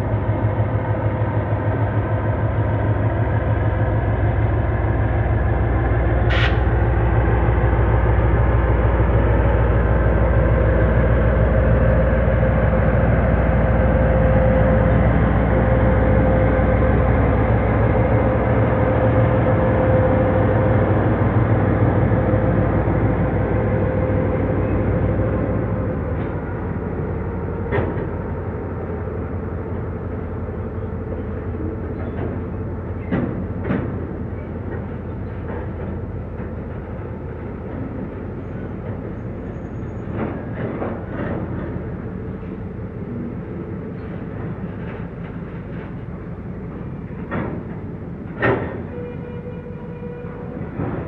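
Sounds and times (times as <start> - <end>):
train wheels rumbling on rails: 0.0 - 51.0
sharp clanks from wagons: 47.1 - 49.4.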